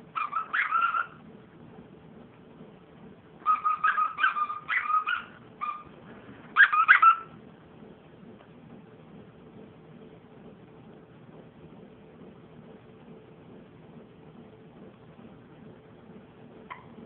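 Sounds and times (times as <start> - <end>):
dog toy squeaking: 0.2 - 1.2, 3.4 - 5.9, 6.6 - 7.3.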